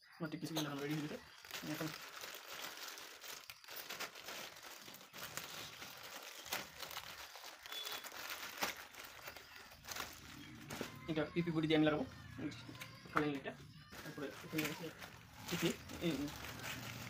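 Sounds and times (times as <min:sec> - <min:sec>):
plastic crinkling and rustling: 0:00.5 - 0:11.9, 0:12.5 - 0:17.0.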